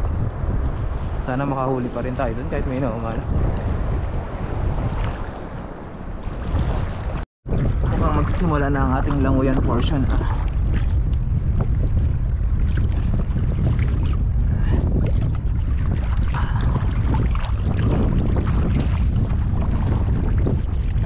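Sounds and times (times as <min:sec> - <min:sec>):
wind buffeting microphone: 0:00.0 - 0:21.0
seawater sloshing from wading: 0:01.8 - 0:11.0.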